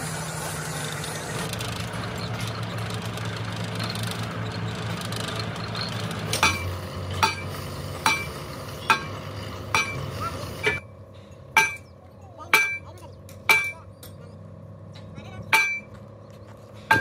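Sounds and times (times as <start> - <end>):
engine running: 0.0 - 17.0
hammer striking metal: 6.3 - 10.8, 11.5 - 11.9, 12.5 - 14.2, 15.5 - 16.0.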